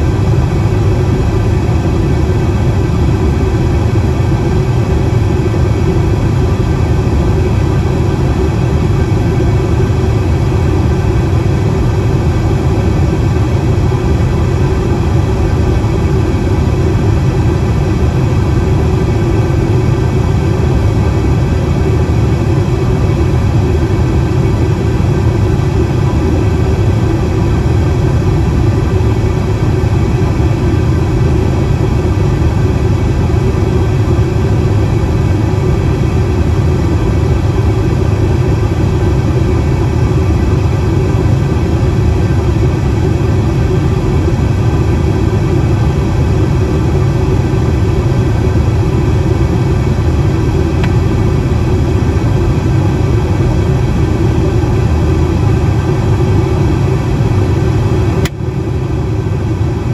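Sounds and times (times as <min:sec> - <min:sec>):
airliner cabin engine drone: 0:00.0 - 0:59.9.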